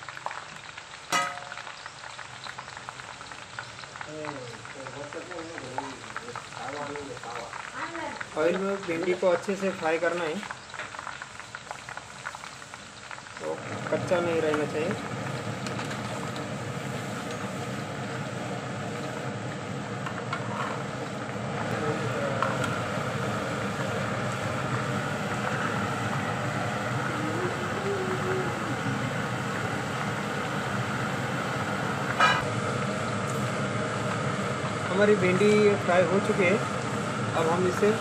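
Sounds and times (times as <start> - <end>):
oil sizzling while deep-frying: 0.0 - 38.0
metal spoon clinking on pan: 1.1 - 1.7.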